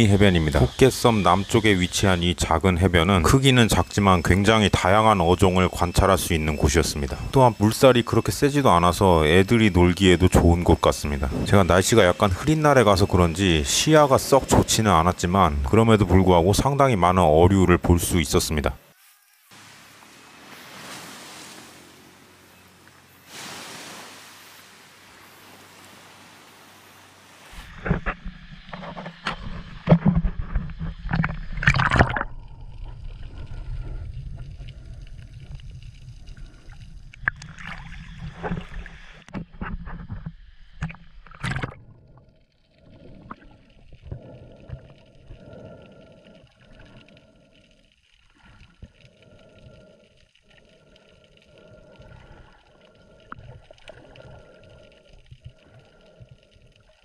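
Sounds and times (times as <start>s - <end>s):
soft repeating underwater pulses: 0.0s - 19.4s, 27.7s - 57.0s
sea water splashing and gurgling: 17.8s - 57.0s
muffled underwater sound: 40.8s - 57.0s.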